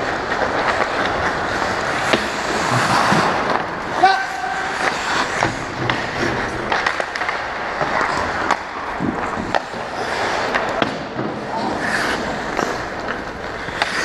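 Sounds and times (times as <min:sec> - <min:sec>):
hockey sticks and puck clacking: 0:00.0 - 0:14.0
skate blades scraping ice: 0:00.0 - 0:14.0.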